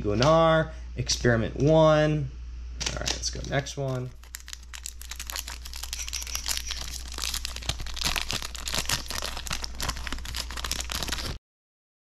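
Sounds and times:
foil wrapper crinkling and tearing: 0:03.9 - 0:11.4.

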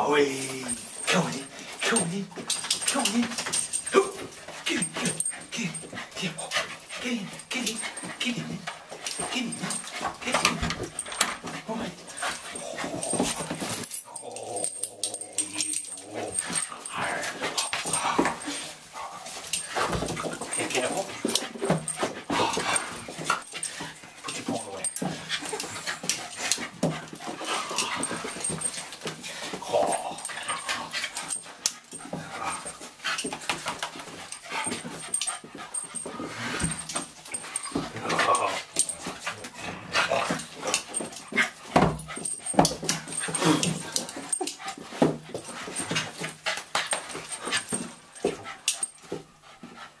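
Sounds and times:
puppy whining and whimpering: 0:12.0 - 0:18.7.

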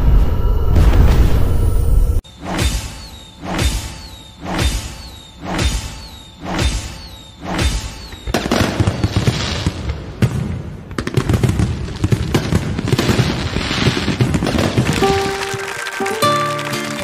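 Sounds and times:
fireworks crackling and booming: 0:07.1 - 0:16.7
held musical notes: 0:15.0 - 0:17.0.

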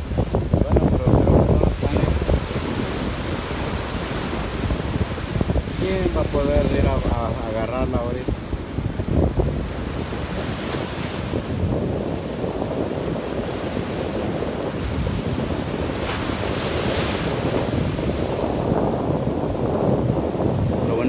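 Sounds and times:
ocean surf breaking: 0:00.0 - 0:21.0
wind buffeting microphone: 0:00.0 - 0:21.0.

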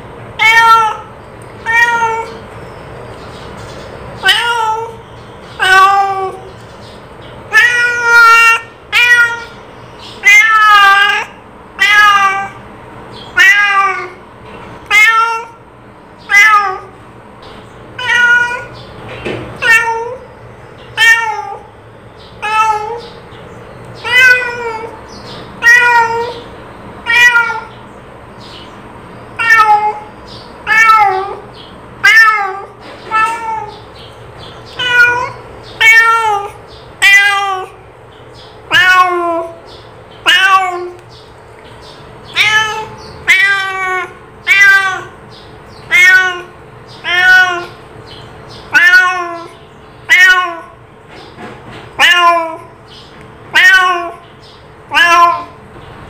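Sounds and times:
cat meowing: 0:00.4 - 0:02.4, 0:04.2 - 0:05.0, 0:05.6 - 0:06.5, 0:07.5 - 0:09.6, 0:10.2 - 0:12.6, 0:13.3 - 0:14.2, 0:14.8 - 0:15.6, 0:16.2 - 0:17.0, 0:18.0 - 0:18.8, 0:19.6 - 0:20.3, 0:20.9 - 0:21.7, 0:22.4 - 0:23.2, 0:24.0 - 0:27.8, 0:29.4 - 0:33.9, 0:34.6 - 0:37.8, 0:38.6 - 0:39.6, 0:40.2 - 0:41.0, 0:42.2 - 0:47.8, 0:48.6 - 0:50.8, 0:51.9 - 0:52.8, 0:53.5 - 0:54.3, 0:54.9 - 0:55.6.

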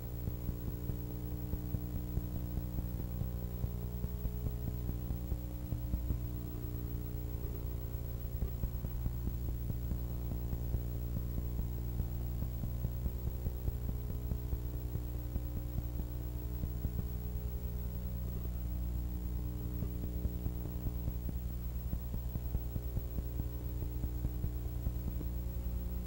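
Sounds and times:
electrical mains hum: 0:00.0 - 0:26.0
faint crackle: 0:00.0 - 0:26.0.

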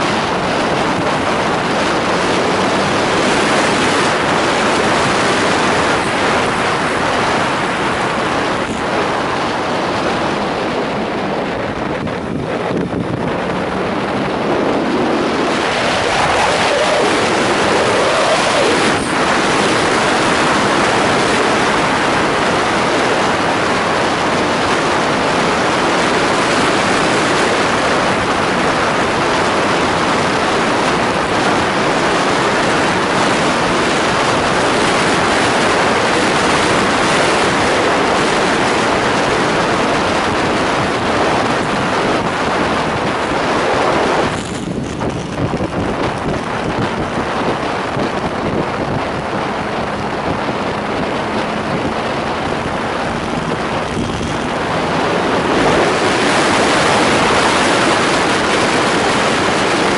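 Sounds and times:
wind rushing over microphone: 0:00.0 - 0:59.9
faint motorcycle engine: 0:42.8 - 0:56.2.

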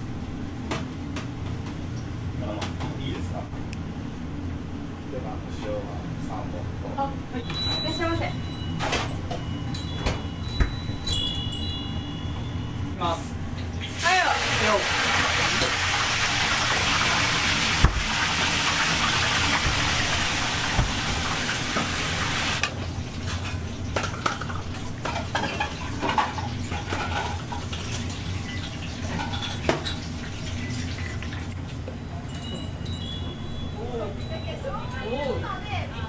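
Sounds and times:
running water rushing: 0:13.9 - 0:22.6.

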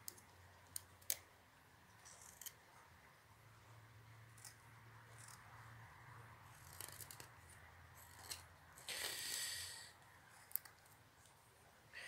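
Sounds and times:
knife carving wood shavings: 0:02.0 - 0:02.6, 0:04.3 - 0:05.5, 0:06.4 - 0:11.3.

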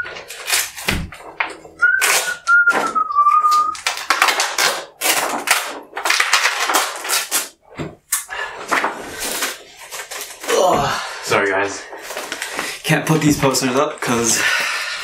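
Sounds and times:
paper poster crinkling and rustling: 0:00.0 - 0:14.4
person whistling: 0:01.8 - 0:03.8.

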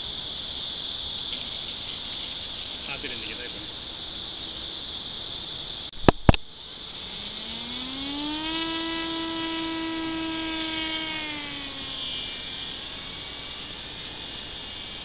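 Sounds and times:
model airplane motor whining: 0:00.0 - 0:05.0, 0:06.5 - 0:15.0
sharp clicks: 0:06.0 - 0:06.5.

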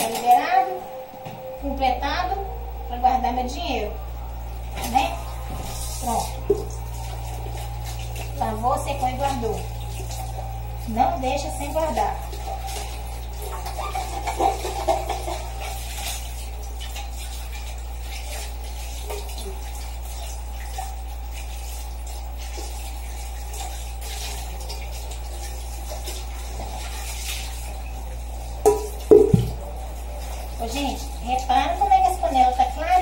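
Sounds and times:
tap running into sink: 0:28.6 - 0:29.7.

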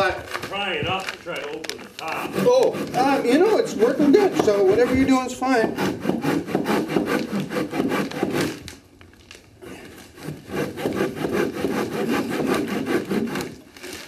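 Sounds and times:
handsaw cutting into log: 0:02.1 - 0:08.6, 0:10.1 - 0:14.0.

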